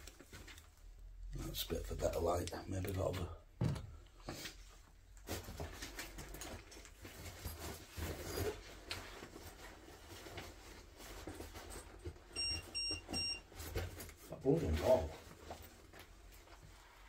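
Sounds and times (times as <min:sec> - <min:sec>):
rustling of equipment handling: 0:00.0 - 0:01.2, 0:04.3 - 0:17.0.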